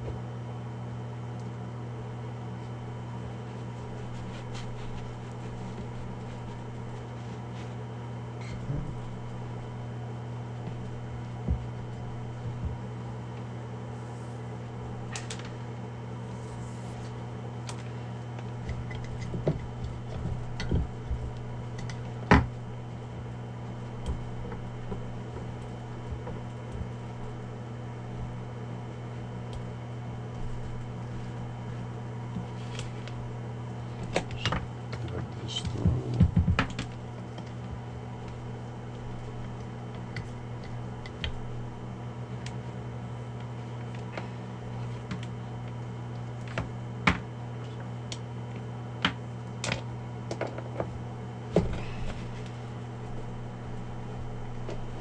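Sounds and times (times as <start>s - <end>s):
low hum: 1.4s - 37.1s.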